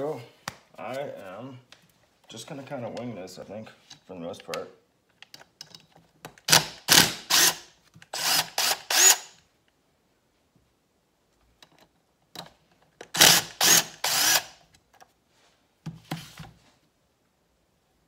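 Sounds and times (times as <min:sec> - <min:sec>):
cordless driver spinning: 0:06.9 - 0:07.6, 0:08.2 - 0:09.3, 0:13.2 - 0:14.5.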